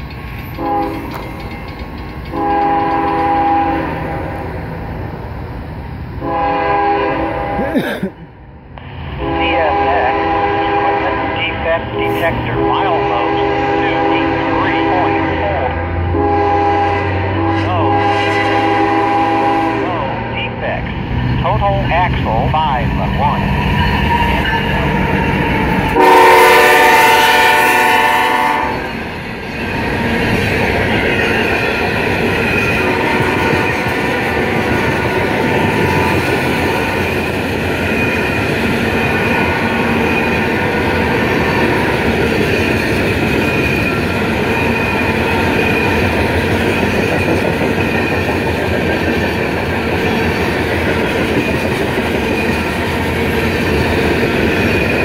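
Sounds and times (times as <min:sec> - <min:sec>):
clickety-clack over rail joints: 0:00.0 - 0:03.6, 0:28.9 - 0:55.0
train wheels on rails: 0:00.0 - 0:08.2, 0:10.2 - 0:55.0
locomotive air horn: 0:00.6 - 0:01.1, 0:02.3 - 0:04.4, 0:06.2 - 0:07.7, 0:09.2 - 0:20.2, 0:26.0 - 0:28.9, 0:32.8 - 0:33.8.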